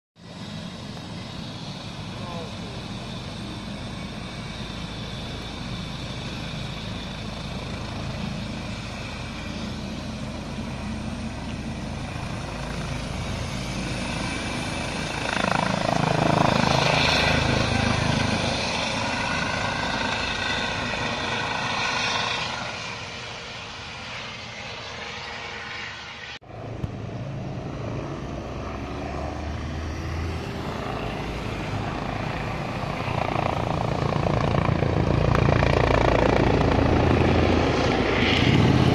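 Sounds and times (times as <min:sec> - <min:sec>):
helicopter rotor: 0:00.2 - 0:38.9.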